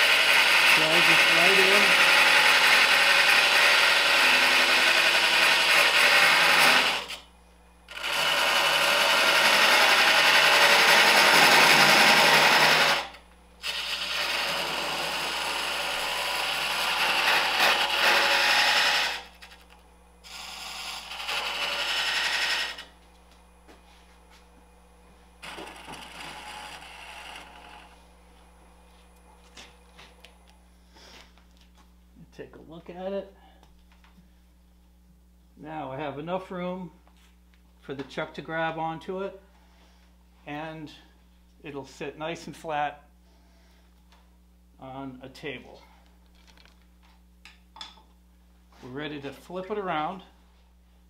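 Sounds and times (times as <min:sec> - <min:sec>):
lathe tool scraping wood: 0:00.0 - 0:07.2, 0:07.9 - 0:22.9, 0:25.4 - 0:28.0
lathe running hum: 0:00.0 - 0:30.6.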